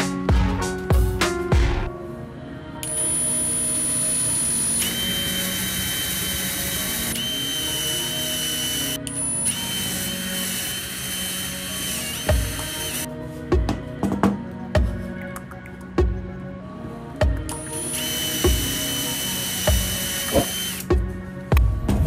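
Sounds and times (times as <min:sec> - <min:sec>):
electric drill boring wood: 0:02.8 - 0:13.1, 0:17.6 - 0:21.0.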